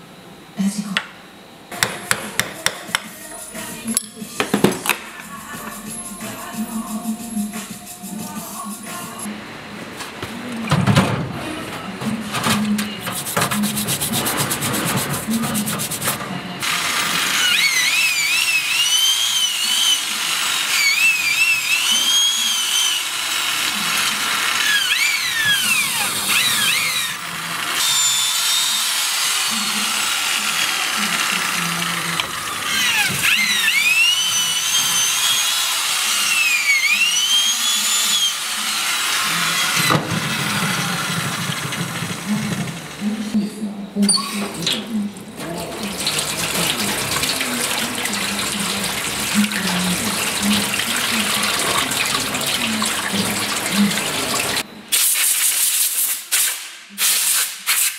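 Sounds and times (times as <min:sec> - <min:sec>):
electric drill whining: 0:16.6 - 0:42.6.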